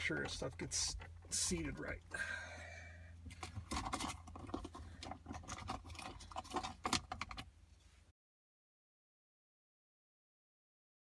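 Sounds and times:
metal parts clicking and rattling: 0:03.3 - 0:07.5.

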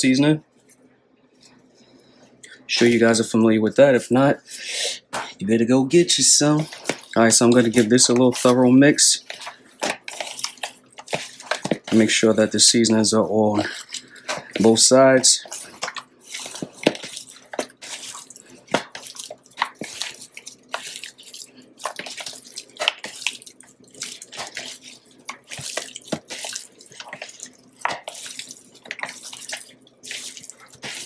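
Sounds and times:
meat smacking in plastic bowl: 0:06.6 - 0:08.6, 0:09.2 - 0:12.1, 0:13.7 - 0:31.0.

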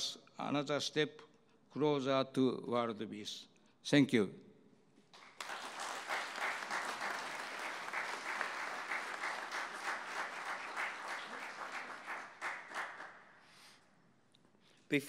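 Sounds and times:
audience applauding: 0:05.2 - 0:13.3.

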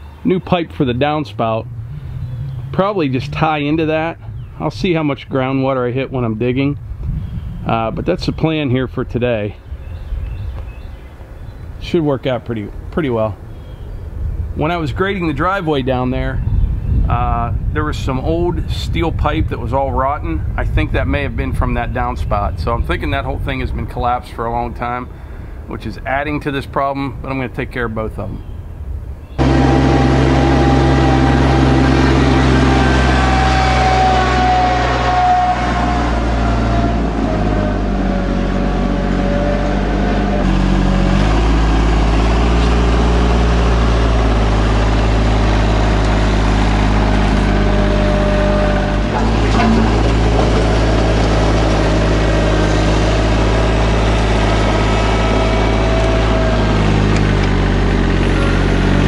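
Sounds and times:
tractor diesel engine running: 0:00.0 - 0:07.9, 0:29.4 - 0:59.0.

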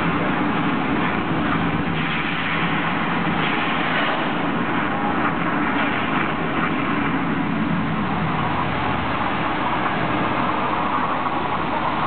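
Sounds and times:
loud rushing waterfall and flames: 0:00.0 - 0:12.0.

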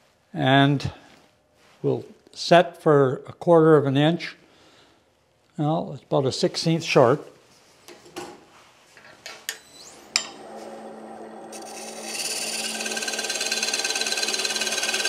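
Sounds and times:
tool scraping spinning wood: 0:09.6 - 0:15.0
wood lathe humming: 0:09.8 - 0:15.0.

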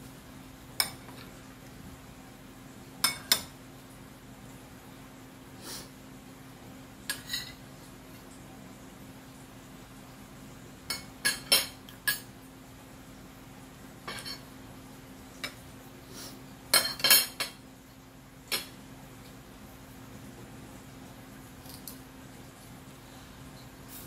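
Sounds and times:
cutlery clinking on plate: 0:14.1 - 0:14.5, 0:16.7 - 0:17.6.

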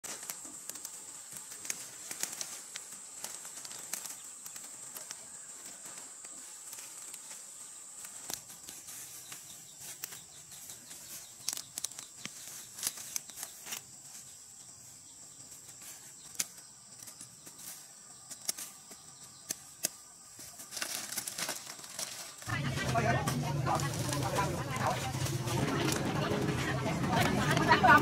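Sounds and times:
stalks snapping: 0:00.0 - 0:05.3, 0:08.0 - 0:08.8, 0:11.3 - 0:13.9, 0:16.3 - 0:17.6, 0:18.2 - 0:20.0, 0:20.6 - 0:22.4
leaves and stalks rustling: 0:00.0 - 0:28.0
high-pitched whine: 0:22.4 - 0:28.0.

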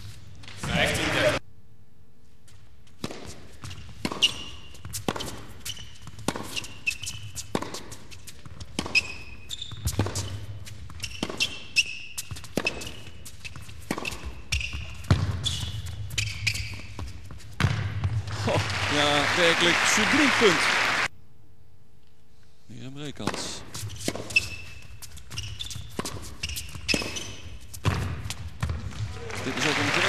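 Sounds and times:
low hum of hall: 0:00.0 - 0:30.0
shoes squeaking on court: 0:02.5 - 0:18.2, 0:23.2 - 0:29.1
tennis racquet striking ball: 0:03.0 - 0:13.2, 0:13.8 - 0:16.3, 0:23.2 - 0:24.6, 0:25.8 - 0:28.8
tennis ball bouncing: 0:03.0 - 0:18.3, 0:23.2 - 0:29.1.

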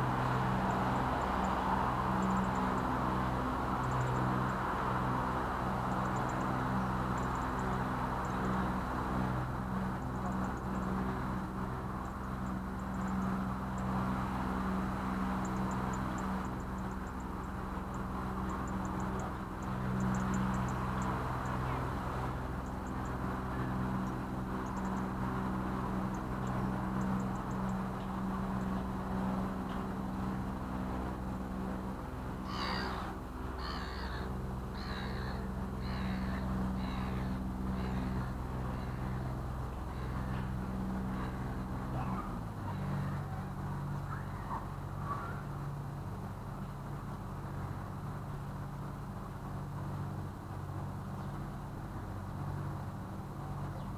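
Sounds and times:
boat engine running: 0:00.0 - 0:53.9
bird calling: 0:32.4 - 0:45.6.

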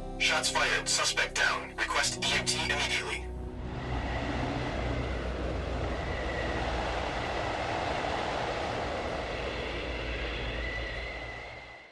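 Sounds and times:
low rumbling noise: 0:02.8 - 0:11.9
faint high whine: 0:03.4 - 0:11.9.

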